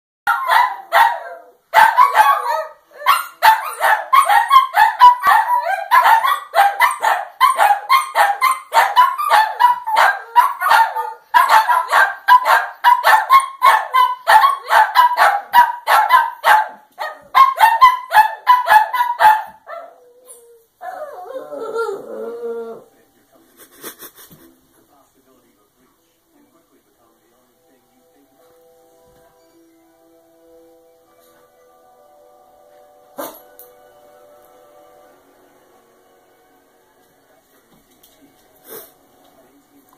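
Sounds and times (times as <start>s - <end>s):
small dogs barking: 0.3s - 22.0s.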